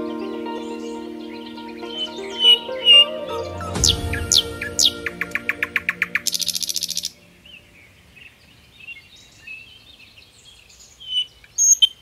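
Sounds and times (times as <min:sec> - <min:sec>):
nightingale singing: 0:00.0 - 0:12.0.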